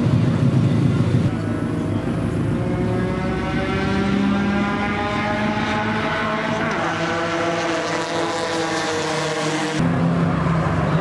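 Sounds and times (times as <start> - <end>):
race car engines idling: 0.0 - 3.1.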